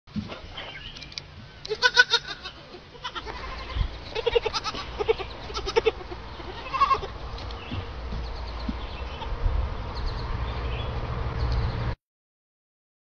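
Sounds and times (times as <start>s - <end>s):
young goats bleating: 1.6s - 7.2s.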